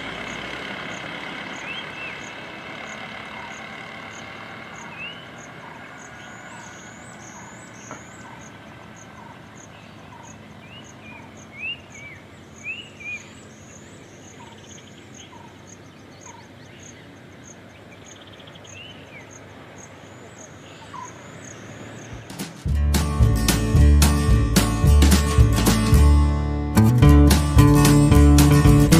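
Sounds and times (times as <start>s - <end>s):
vehicle noise: 0.0s - 28.9s
birds whistling calls: 0.9s - 22.2s.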